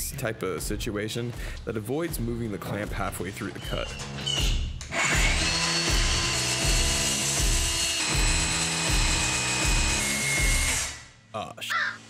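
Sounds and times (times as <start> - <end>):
background music with beat: 0.0 - 4.8
circular saw cutting wood: 4.9 - 11.0.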